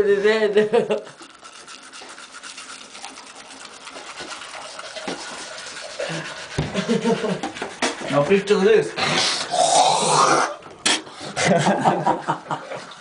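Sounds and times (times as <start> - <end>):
toothbrush scrubbing teeth: 0.2 - 12.0.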